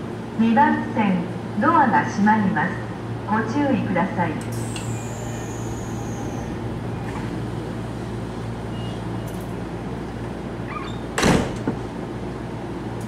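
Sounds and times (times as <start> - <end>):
train low hum: 0.0 - 13.0
train doors closing: 4.4 - 13.0
loud door thud: 11.2 - 11.8.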